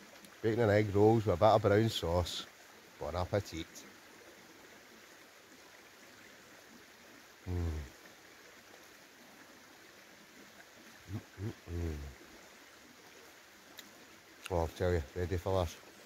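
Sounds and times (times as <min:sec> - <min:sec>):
river running over stones: 0:00.0 - 0:16.0
man humming while chewing: 0:07.5 - 0:07.9, 0:11.1 - 0:12.2.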